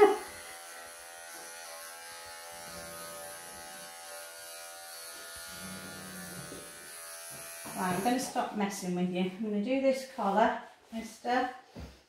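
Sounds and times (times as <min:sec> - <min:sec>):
electric clippers humming: 0:00.0 - 0:08.4.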